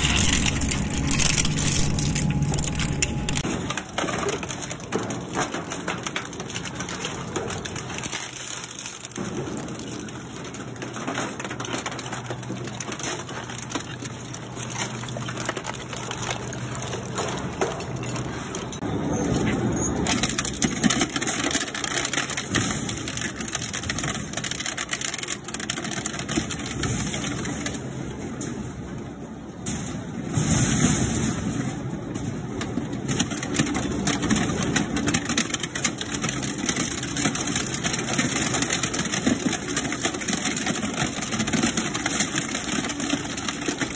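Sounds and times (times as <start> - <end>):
low motor hum: 0.0 - 3.4
shredder crunching plastic: 0.0 - 18.8, 20.0 - 28.0, 32.7 - 43.9.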